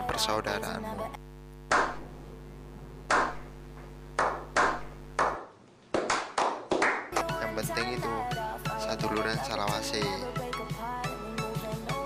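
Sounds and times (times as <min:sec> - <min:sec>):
ringing hand claps: 0:04.2 - 0:07.3
people clapping: 0:04.2 - 0:07.4.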